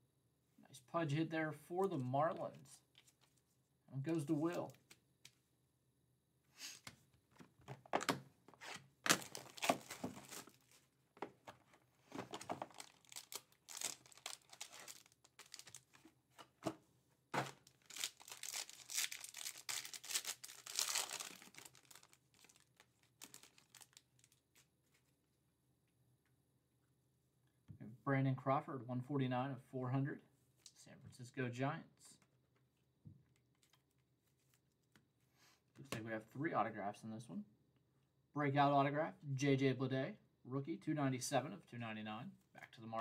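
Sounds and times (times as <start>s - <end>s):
wrapper tearing and crumpling: 9.1s - 10.6s, 12.3s - 16.0s, 17.4s - 24.6s.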